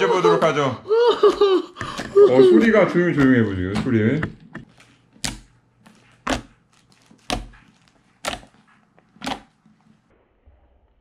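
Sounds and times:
slime popping: 0:05.2 - 0:09.7.

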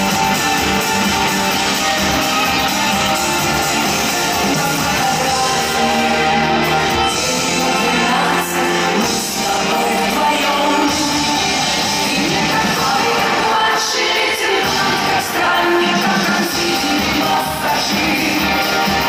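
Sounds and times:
drums: 0:00.0 - 0:19.0
electric guitars: 0:00.0 - 0:19.0
female lead singer: 0:03.8 - 0:19.0.

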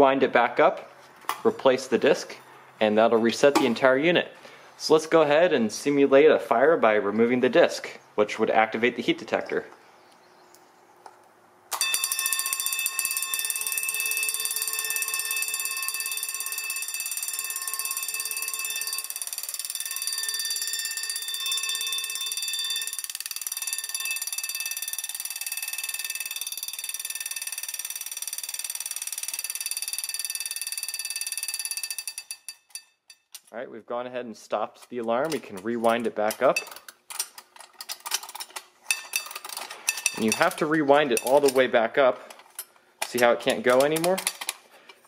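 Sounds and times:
fire alarm gong ringing: 0:11.8 - 0:32.6.

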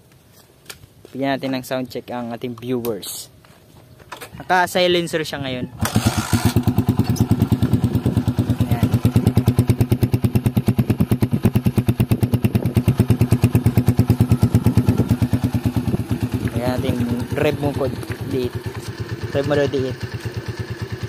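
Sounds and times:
motorcycle engine idling: 0:05.8 - 0:21.0.

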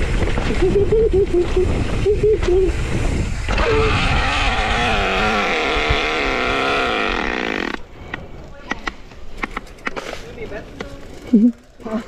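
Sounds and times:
bike tyres rolling on dirt: 0:00.0 - 0:02.0, 0:07.8 - 0:12.0
wind rumble: 0:00.0 - 0:11.4.

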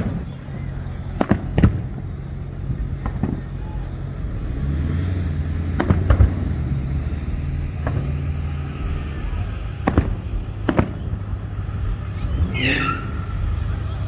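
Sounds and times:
firework shells bursting: 0:00.0 - 0:04.0, 0:05.6 - 0:11.6
steady low rumble: 0:00.0 - 0:14.0.

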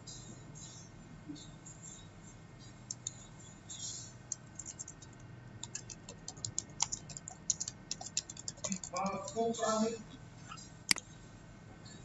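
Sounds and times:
computer keyboard keys clicking: 0:02.9 - 0:03.2, 0:04.3 - 0:09.7.

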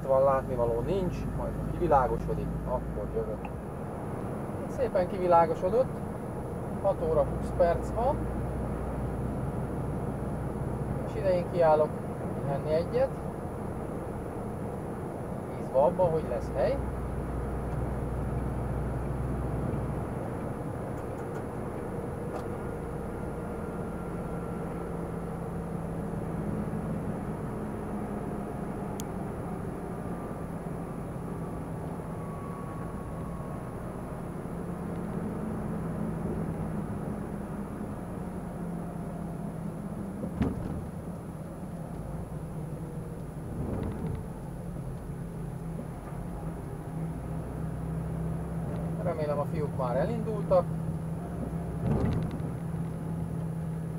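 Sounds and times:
diesel truck engine running: 0:00.0 - 0:53.9
road and tyre noise: 0:00.0 - 0:53.9.

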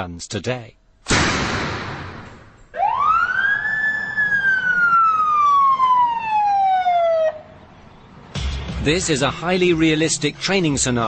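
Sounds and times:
police siren wailing: 0:02.7 - 0:07.8.

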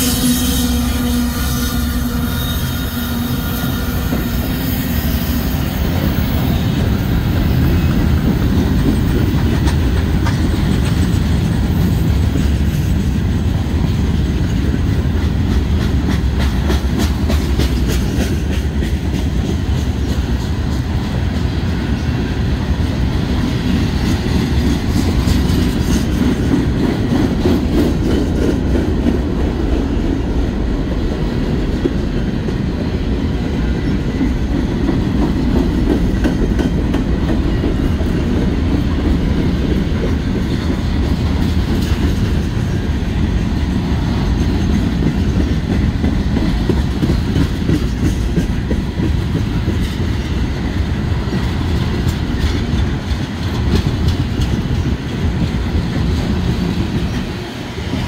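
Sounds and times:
diesel locomotive engine: 0:00.0 - 0:58.0
steel wheels rumbling on rail: 0:00.0 - 0:58.0
wheels clicking over rail joints: 0:33.8 - 0:58.0.

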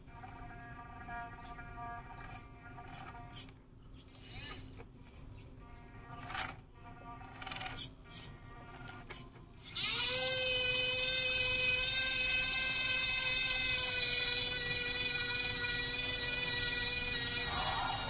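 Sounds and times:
electric forklift motor whining: 0:06.0 - 0:18.0.

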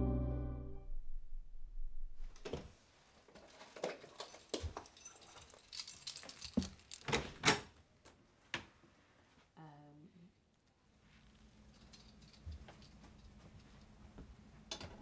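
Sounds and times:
keys jingling: 0:04.0 - 0:07.4, 0:11.7 - 0:13.4.

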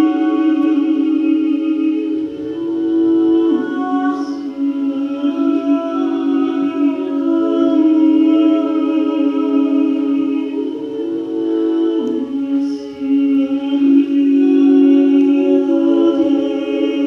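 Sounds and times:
woman's wordless drone vocals: 0:00.0 - 0:17.0.

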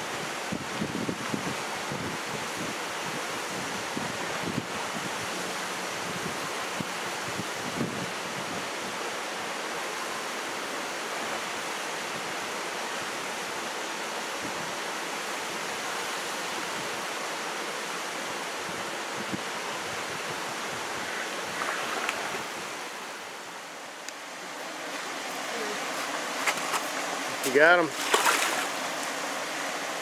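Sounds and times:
stream rushing over rocks: 0:00.0 - 0:30.0.

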